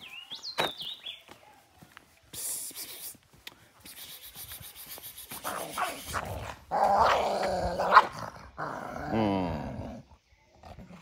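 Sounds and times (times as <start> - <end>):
dog growling: 5.8 - 11.0.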